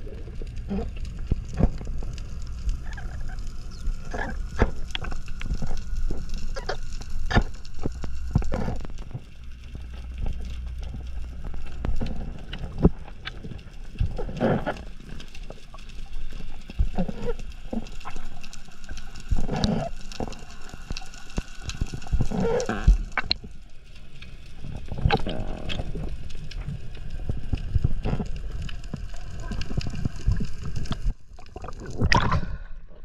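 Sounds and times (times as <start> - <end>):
rushes of water noise: 0.0 - 33.0
underwater clicks and crackles: 0.0 - 33.0.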